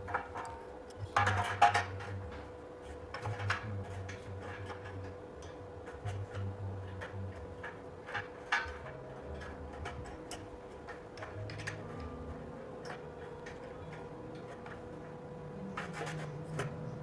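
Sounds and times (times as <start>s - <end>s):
metal plates clinking on steel: 0.0s - 17.0s.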